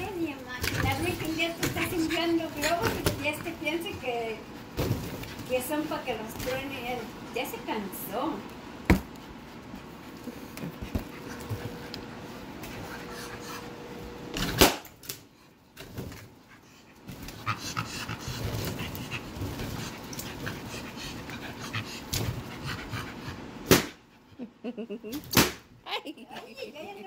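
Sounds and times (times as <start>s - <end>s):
dog panting: 0.0s - 4.8s, 9.2s - 14.1s, 16.4s - 24.5s.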